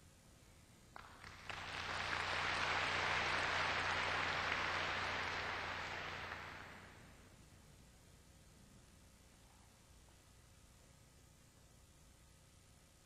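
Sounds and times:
audience applauding: 1.0 - 7.1.

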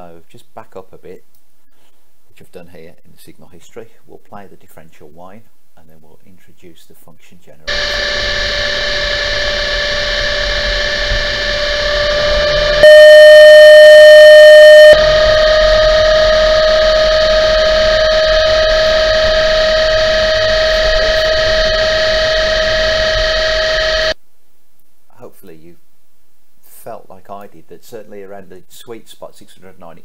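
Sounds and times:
differential whine: 7.7 - 24.2
pure sine tone: 7.7 - 24.2.

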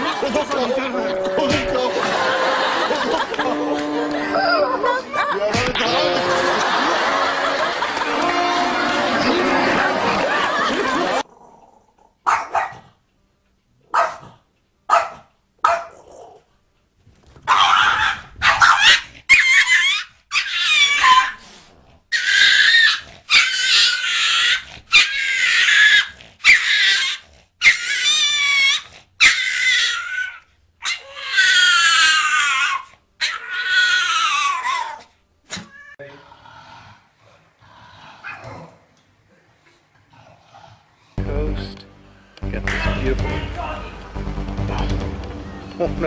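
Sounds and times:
small dog barking and yelping: 12.2 - 12.9, 13.9 - 14.3, 14.9 - 16.4, 17.4 - 21.4, 22.1 - 35.8.

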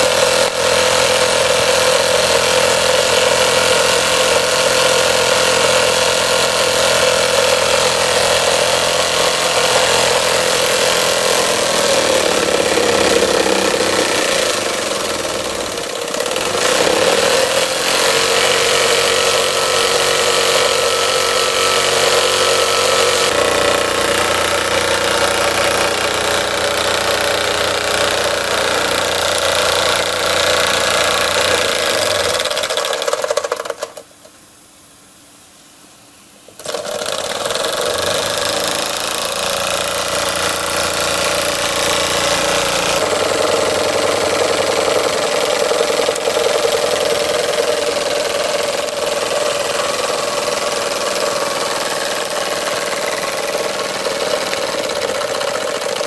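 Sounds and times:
model steam engine running: 0.0 - 33.9, 36.6 - 56.0.

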